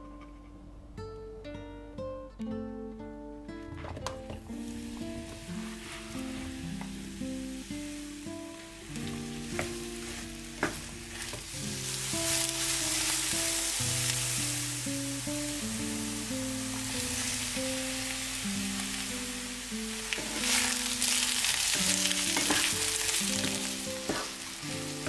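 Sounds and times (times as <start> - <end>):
background music: 0.0 - 25.0
vegetables sizzling in oil: 4.3 - 25.0
wooden spoon stirring: 9.5 - 14.6, 20.0 - 25.0.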